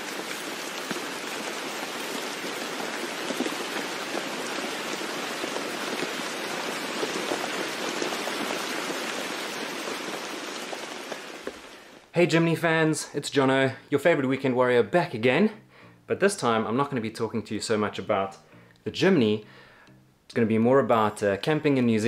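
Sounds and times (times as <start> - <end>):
steady rain falling: 0.0 - 12.1.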